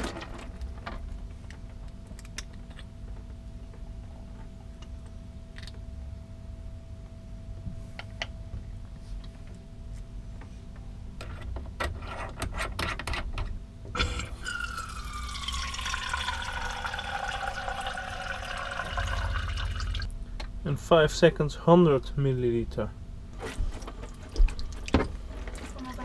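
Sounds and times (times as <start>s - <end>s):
water stream into plastic jug: 14.0s - 20.1s.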